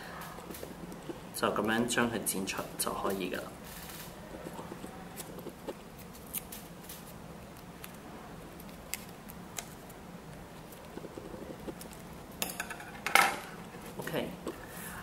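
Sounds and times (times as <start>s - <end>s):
scissors snipping paper: 4.5s - 10.0s.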